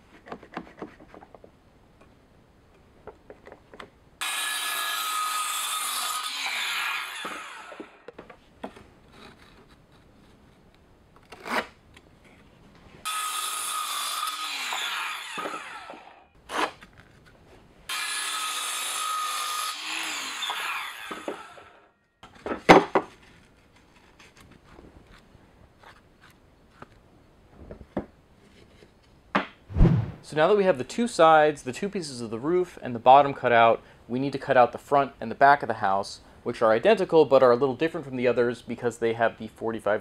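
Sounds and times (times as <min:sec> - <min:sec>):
circular saw cutting wood: 0:04.2 - 0:08.0, 0:13.0 - 0:16.2, 0:17.9 - 0:21.8.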